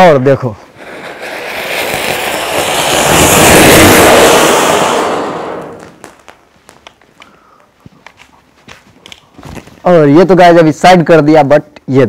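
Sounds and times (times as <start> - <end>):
firework spraying sparks hissing: 0.6 - 6.5.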